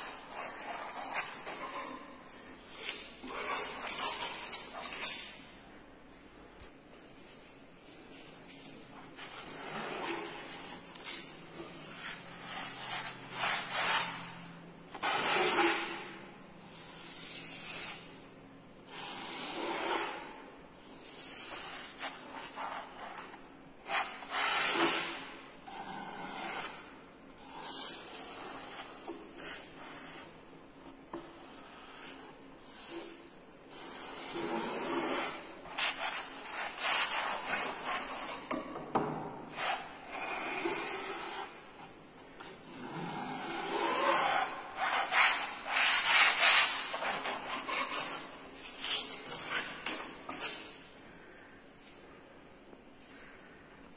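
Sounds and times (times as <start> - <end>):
paint scraping across a board: 0.0 - 5.4, 7.2 - 18.3, 43.8 - 50.9.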